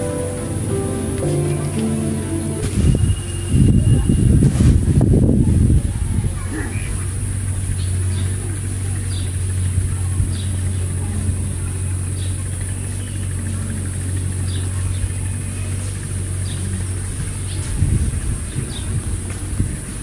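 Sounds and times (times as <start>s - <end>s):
short high chirps: 0.0s - 4.4s
low engine-like hum: 0.0s - 20.0s.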